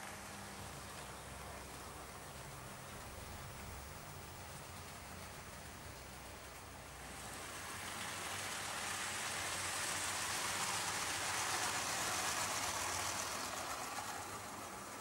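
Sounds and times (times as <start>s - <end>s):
model train wheels rattling: 5.6s - 15.0s.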